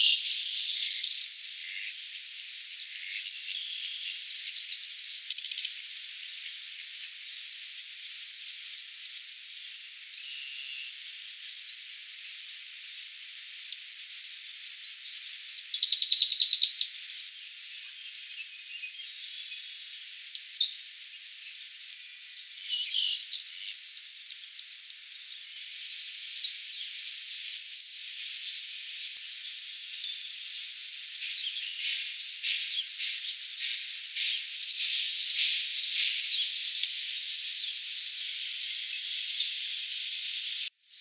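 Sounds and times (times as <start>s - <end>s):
steady high hiss: 0.0s - 41.0s
bird chirps: 14.7s - 21.7s, 22.3s - 40.7s.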